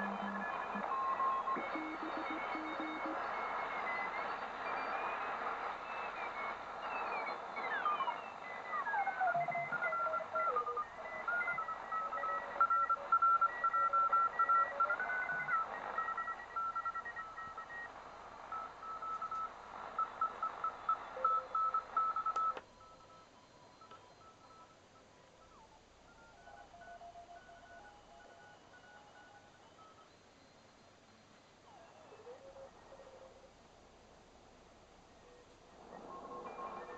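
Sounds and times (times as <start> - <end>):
morse code beeping tones: 0.0 - 4.5
radio band noise: 0.0 - 22.6, 35.3 - 36.9.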